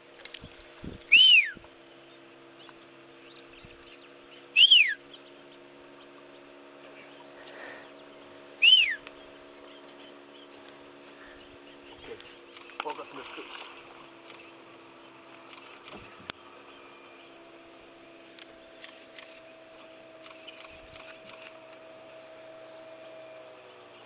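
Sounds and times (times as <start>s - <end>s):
person whistling: 8.6s - 9.0s.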